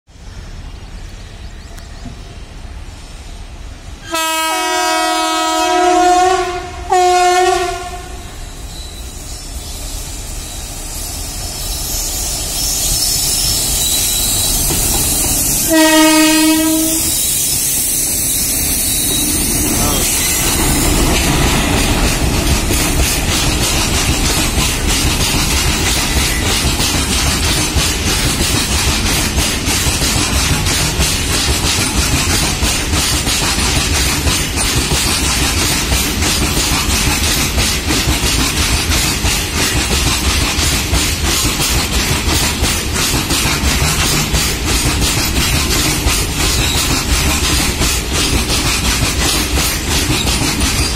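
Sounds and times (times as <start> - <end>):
freight train rumbling past: 0.1 - 50.9
locomotive air horn blasts: 4.0 - 8.4, 15.6 - 17.2
wheels clacking over rail joints: 12.1 - 50.9.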